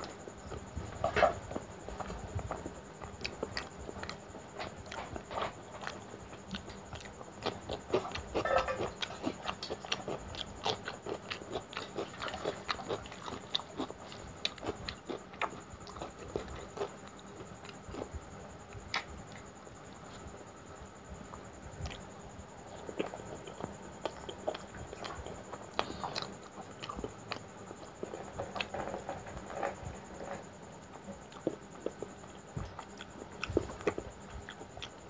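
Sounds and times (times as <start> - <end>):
wet chewing and lip smacking: 1.5 - 18.1, 21.3 - 22.1, 22.7 - 28.7, 31.3 - 35.0.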